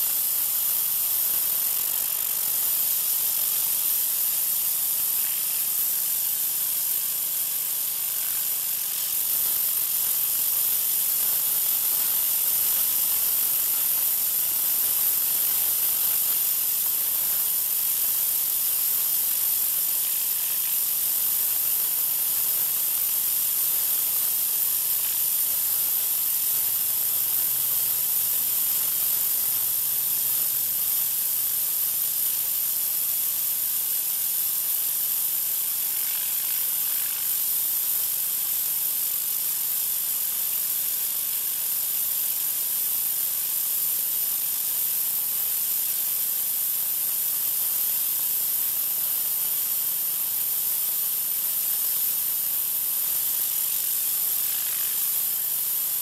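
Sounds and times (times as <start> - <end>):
pressure washer spray hissing: 34.9 - 38.4, 53.4 - 56.0.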